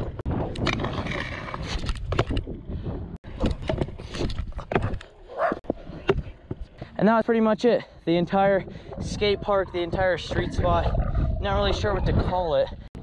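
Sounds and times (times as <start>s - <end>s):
scooter wheels rumbling on concrete: 0.0s - 7.1s.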